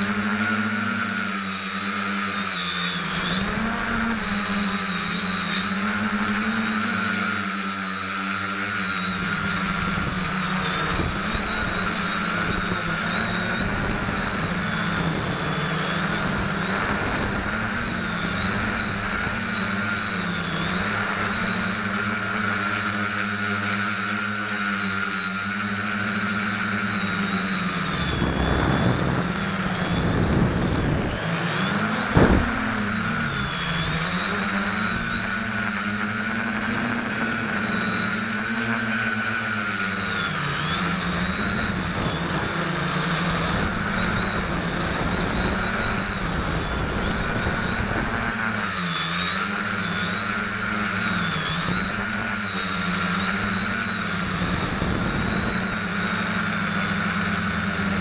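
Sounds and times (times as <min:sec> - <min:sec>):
drone motors humming: 0:00.0 - 0:58.0.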